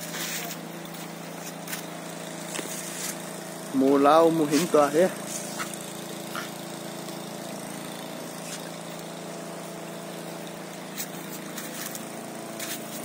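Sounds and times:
motor humming: 0.0 - 13.0
footsteps on stones: 12.6 - 13.0.

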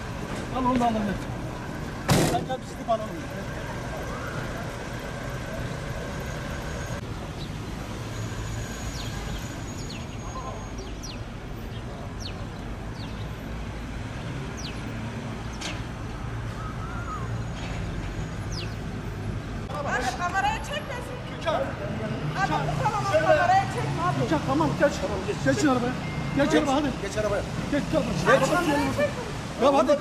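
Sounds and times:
road traffic rumble: 0.0 - 30.0.

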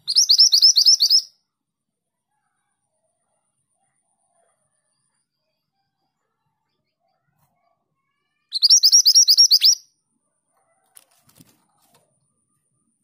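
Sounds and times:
bird singing sharp rising notes: 0.0 - 1.3, 8.6 - 9.8.

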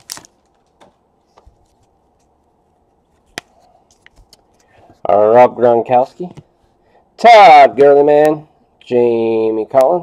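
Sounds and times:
cards flicking and tapping: 3.2 - 4.7.

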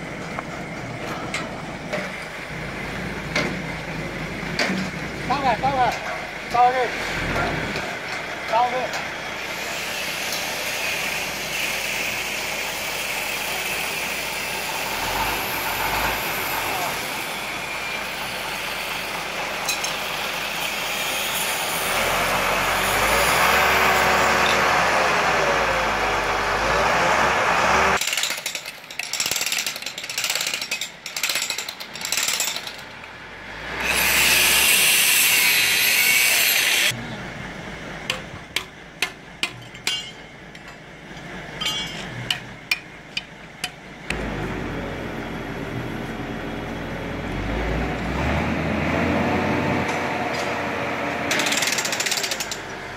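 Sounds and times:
sharp clicks and knocks: 41.6 - 44.2.

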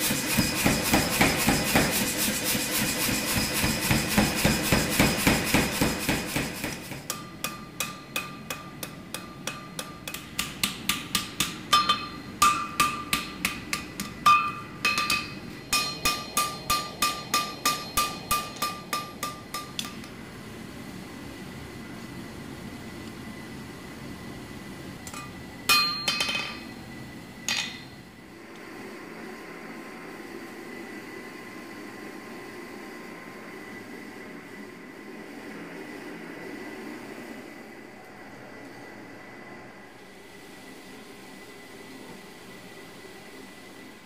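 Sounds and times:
hammer striking blade on anvil: 0.1 - 20.1, 25.1 - 26.7.

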